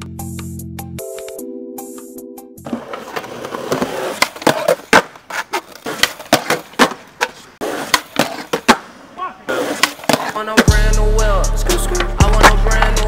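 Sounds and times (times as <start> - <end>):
skateboard wheels rolling on concrete: 0.2 - 13.0
skateboard clacks: 2.6 - 8.9, 9.5 - 10.8, 11.9 - 13.0.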